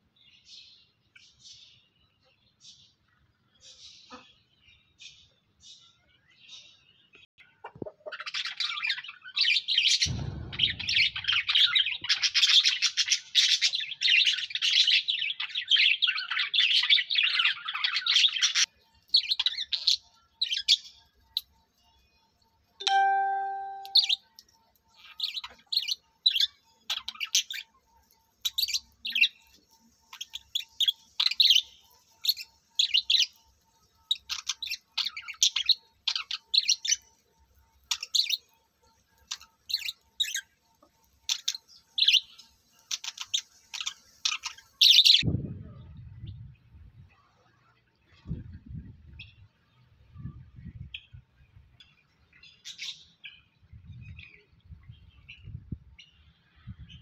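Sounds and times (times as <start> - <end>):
low thump: 10.1 - 12.2
short steady tone: 22.8 - 24.1.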